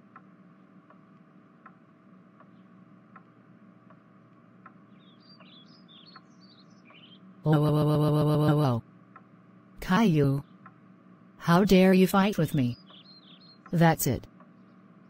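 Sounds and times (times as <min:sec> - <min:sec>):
faint regular ticking: 0:00.0 - 0:07.0, 0:08.9 - 0:11.9
low steady hum: 0:00.0 - 0:15.0
birds chirping: 0:04.7 - 0:15.0.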